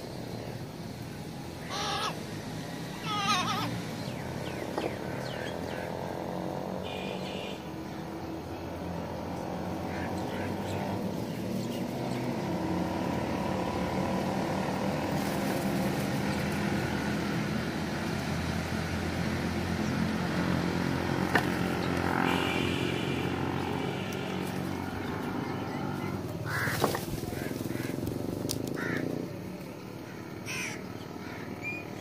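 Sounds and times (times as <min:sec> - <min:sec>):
engine hum: 0:00.0 - 0:32.0
crow wings fluttering: 0:14.9 - 0:16.7, 0:26.2 - 0:29.1.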